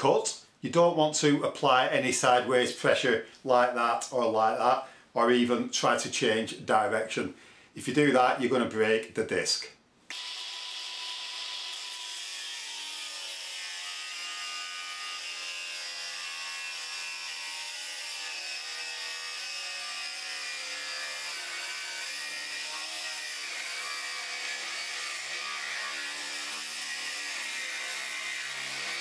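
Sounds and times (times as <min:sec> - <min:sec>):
angle grinder cutting metal: 0:10.1 - 0:29.0.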